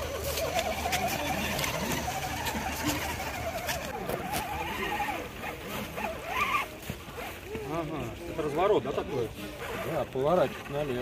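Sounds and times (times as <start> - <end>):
electric motor and gears whining: 0.0 - 7.5.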